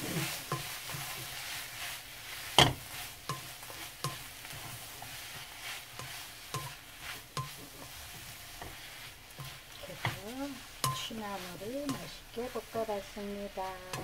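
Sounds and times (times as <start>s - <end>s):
greens sizzling in a wok: 0.0s - 14.0s.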